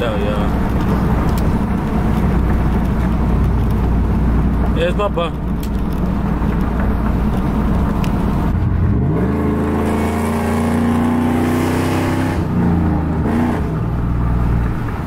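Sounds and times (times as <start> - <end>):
pickup truck engine accelerating: 0.0 - 15.0.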